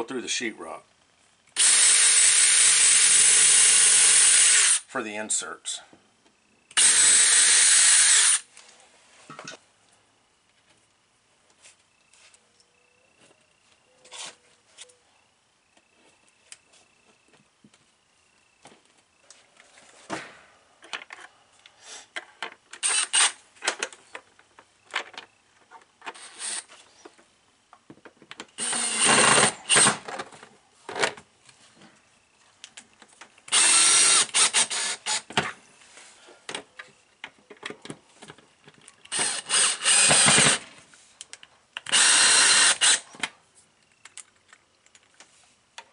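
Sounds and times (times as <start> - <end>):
cordless drill bursts: 1.6 - 4.9, 6.7 - 8.5, 22.8 - 23.4, 26.2 - 26.7, 28.6 - 30.1, 33.5 - 35.3, 39.1 - 40.6, 41.9 - 43.0
small clicks and handling noises: 32.5 - 33.5, 36.5 - 39.2, 41.2 - 42.0, 43.2 - 45.9.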